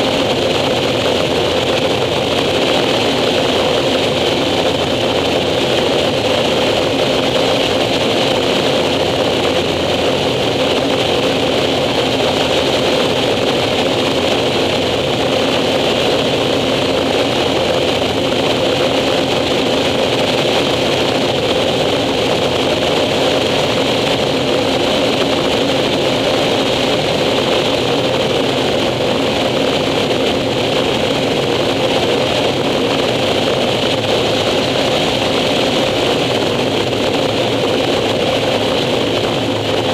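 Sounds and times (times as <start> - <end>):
turboprop engine drone: 0.0 - 39.9.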